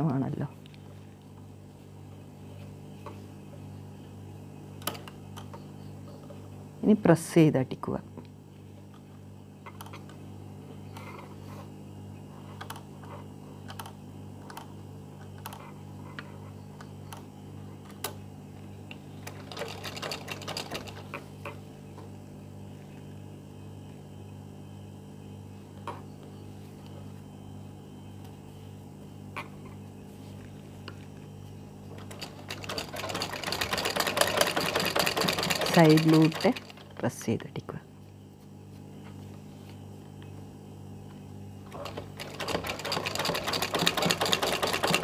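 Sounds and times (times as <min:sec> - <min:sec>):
sewing machine running: 0:19.3 - 0:21.1, 0:32.1 - 0:36.9, 0:41.8 - 0:45.0
sewing machine rattling clicks: 0:32.0 - 0:37.0, 0:41.8 - 0:45.0.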